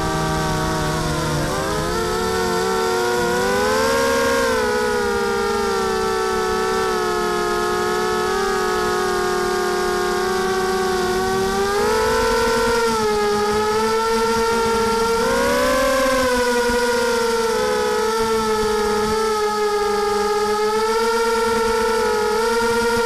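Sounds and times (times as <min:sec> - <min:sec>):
drone motors whining: 0:00.0 - 0:23.0.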